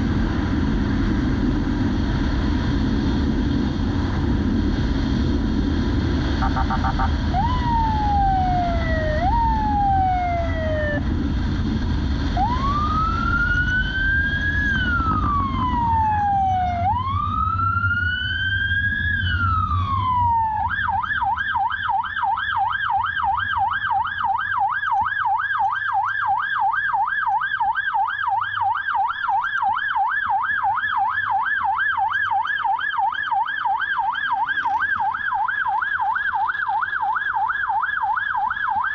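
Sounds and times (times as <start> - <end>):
wind noise: 0.0 - 20.9
motorcycle engine: 6.3 - 9.1
police siren wailing and yelping: 6.4 - 11.1, 12.4 - 38.9.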